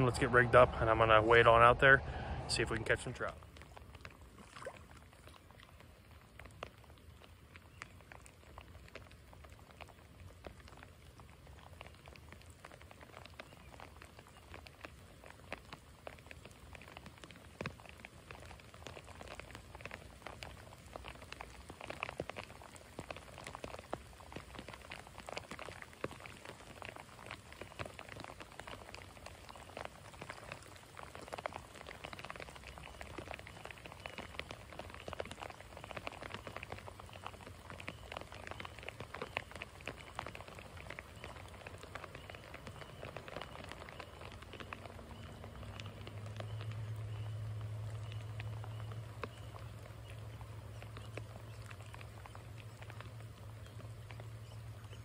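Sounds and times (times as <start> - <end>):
low steady hum: 0.0 - 8.4
rain pattering on creek: 0.0 - 55.0.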